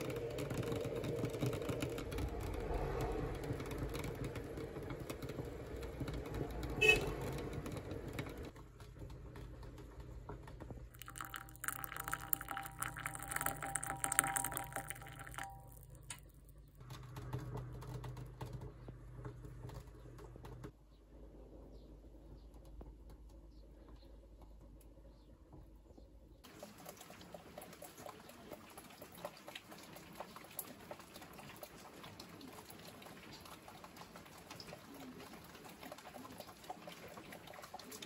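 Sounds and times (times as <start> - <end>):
tea bubbling in a pot: 9.5 - 16.8, 26.4 - 38.0
tea pouring into a bowl: 10.9 - 16.5.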